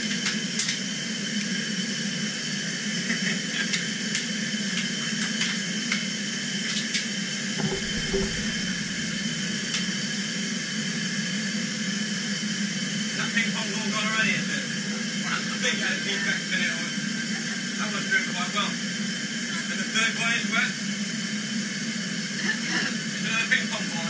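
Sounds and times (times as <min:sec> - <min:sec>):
low rumble: 0:07.6 - 0:09.8.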